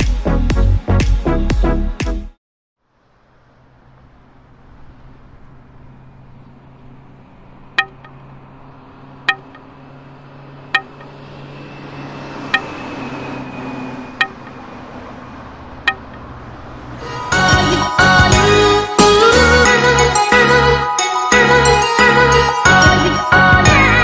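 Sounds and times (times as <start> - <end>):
swelling wash of sound: 9.3 - 20.0.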